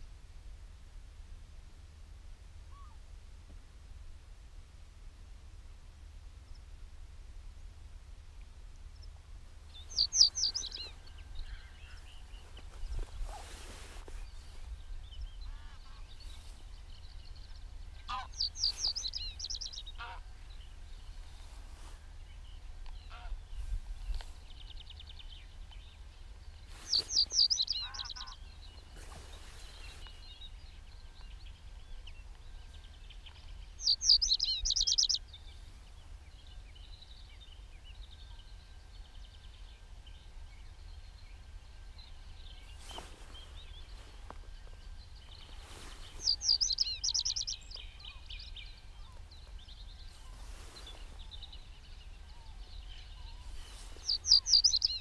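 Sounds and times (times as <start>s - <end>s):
faint bird chirps: 8.9s - 55.0s
songbird trilling: 9.7s - 12.4s, 17.3s - 20.7s, 26.8s - 28.6s, 33.2s - 35.4s, 45.2s - 50.4s, 51.3s - 55.0s.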